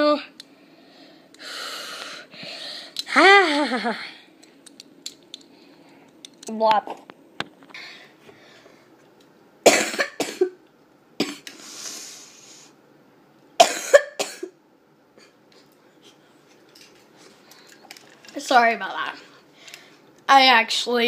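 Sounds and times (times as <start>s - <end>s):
faint breath: 0.5s - 3.0s, 7.7s - 8.9s
person coughing: 9.7s - 10.6s, 13.6s - 14.6s.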